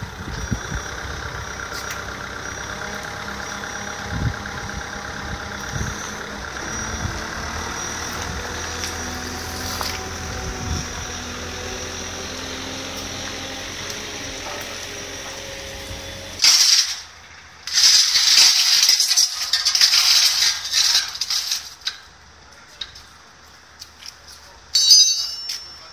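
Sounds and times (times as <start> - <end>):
vehicle engine idling: 0.0 - 16.4
metallic rattling and scraping: 0.0 - 22.2.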